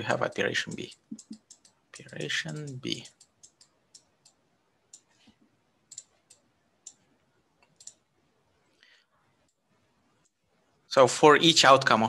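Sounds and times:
stylus tapping on tablet: 0.1 - 5.1.

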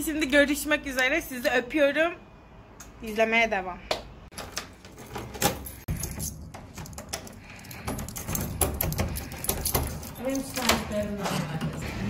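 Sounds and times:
keys jangling: 4.9 - 11.4.

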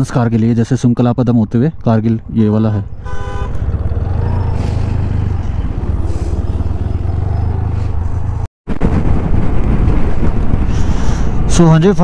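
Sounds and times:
road and wind noise: 0.0 - 12.0
motorcycle engine drone: 2.8 - 10.9.

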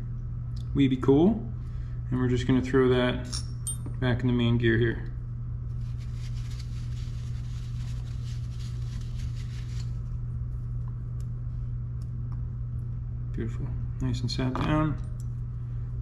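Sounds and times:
air conditioner humming: 0.0 - 16.0
paper towel rustling: 5.8 - 10.1.

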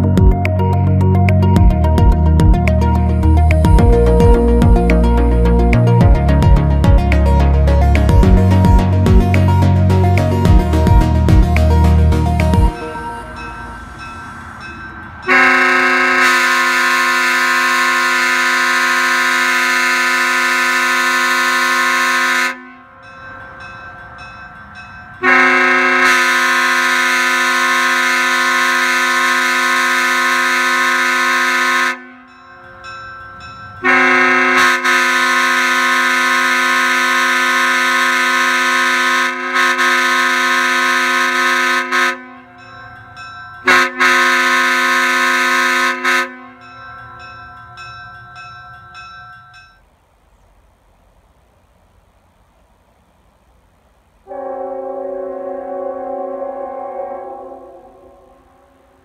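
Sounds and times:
air horn chord blasts: 15.3 - 22.9, 25.2 - 32.3, 33.8 - 42.5, 43.6 - 46.7, 54.3 - 59.0.

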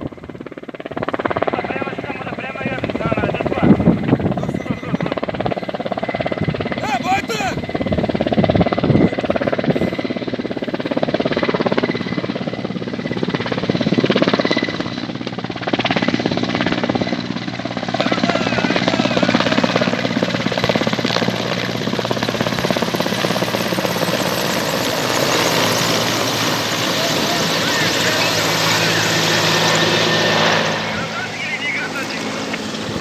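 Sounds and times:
helicopter rotor and engine drone: 0.0 - 33.0.

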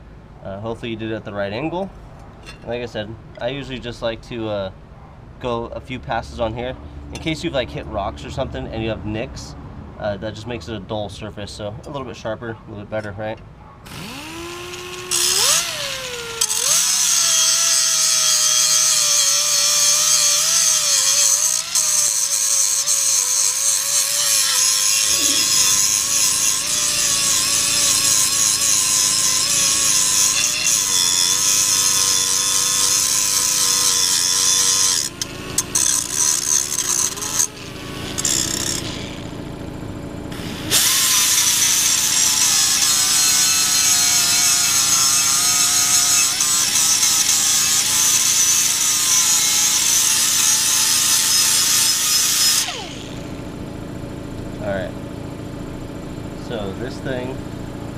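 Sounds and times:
electric grinder grinding metal: 13.9 - 39.4, 40.3 - 53.4.

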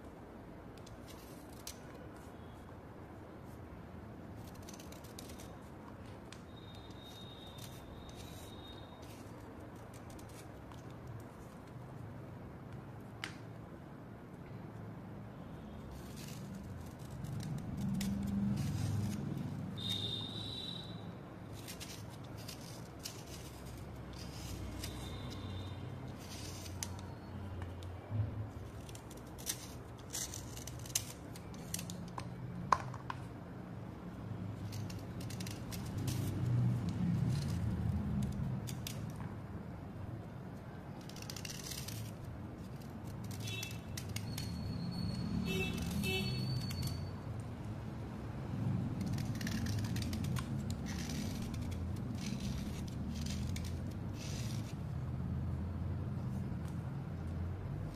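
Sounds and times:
metal blade scraping slate: 15.9 - 20.2, 21.6 - 27.2, 49.0 - 54.9.

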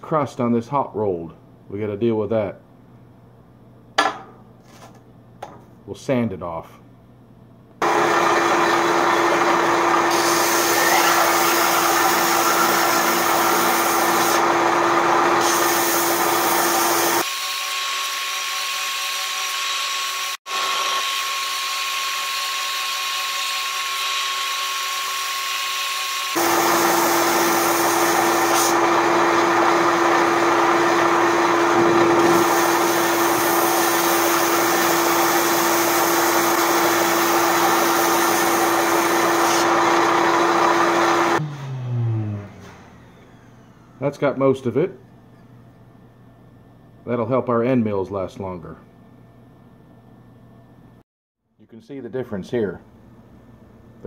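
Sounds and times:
belt sander grinding steel: 7.8 - 44.1.

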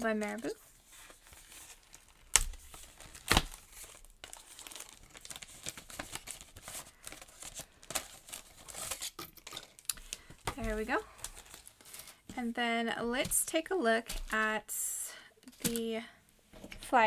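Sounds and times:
card and plastic crinkling: 0.0 - 12.4, 15.5 - 15.9.

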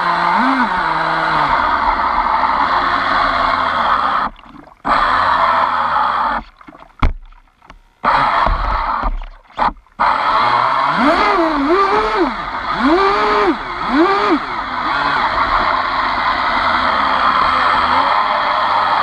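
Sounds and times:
rc boat motor whine: 0.0 - 6.6, 7.9 - 19.0.

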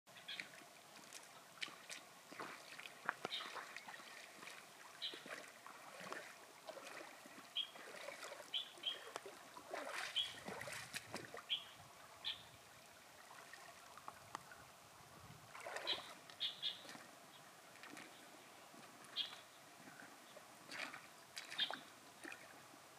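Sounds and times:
stream trickling: 0.1 - 22.9
boots splashing through water: 0.2 - 11.6, 15.5 - 17.1, 17.7 - 19.4, 20.0 - 22.6
high bird chirps: 11.5 - 12.5, 15.9 - 16.9, 19.2 - 19.4.

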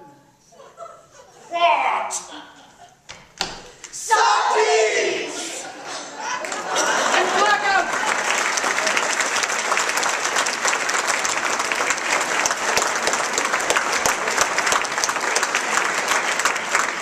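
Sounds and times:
audience applauding: 6.2 - 17.0.

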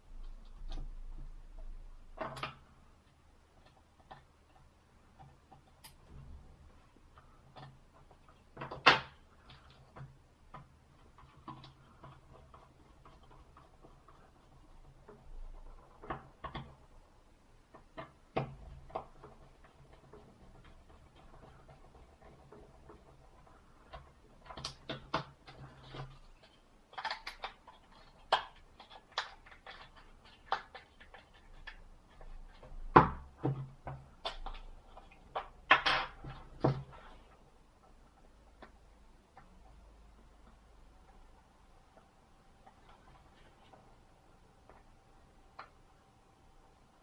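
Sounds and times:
small plastic clicks and taps: 7.1 - 16.9, 17.6 - 37.2.

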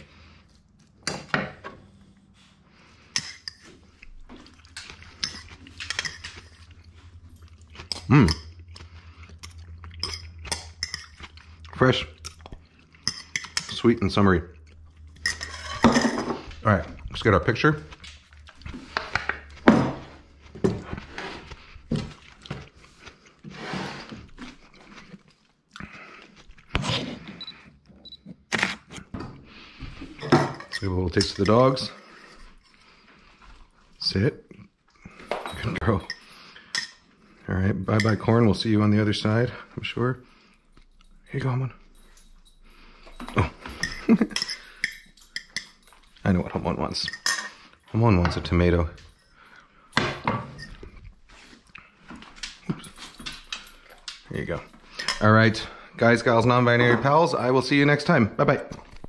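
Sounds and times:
spoons clinking and scraping bowls: 2.7 - 19.7, 29.8 - 34.2, 35.0 - 39.4, 40.8 - 55.8.

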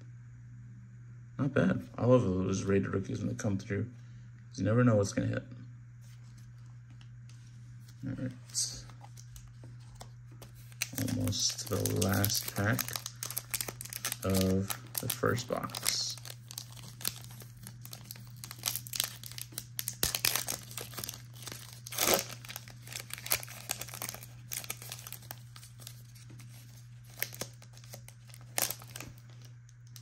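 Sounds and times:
steady low hum: 0.0 - 30.0
foil wrapper tearing and crinkling: 8.5 - 30.0.

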